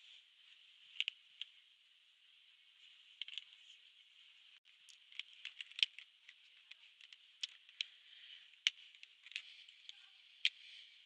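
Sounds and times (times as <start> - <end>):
faint steady hiss: 0.0 - 11.0
plastic markers clicking and tapping: 4.6 - 10.7.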